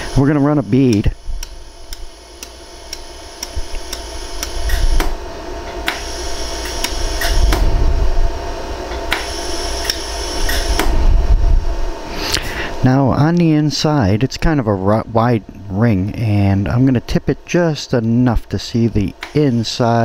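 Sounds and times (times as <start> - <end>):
laser welder pulses snapping: 0.0 - 7.7, 8.9 - 11.0, 19.1 - 19.6
steady machine hum: 0.0 - 20.0.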